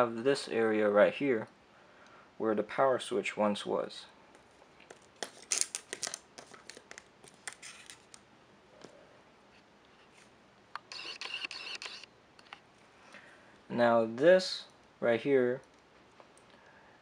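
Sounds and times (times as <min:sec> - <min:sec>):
paper rustling: 0:04.8 - 0:08.2.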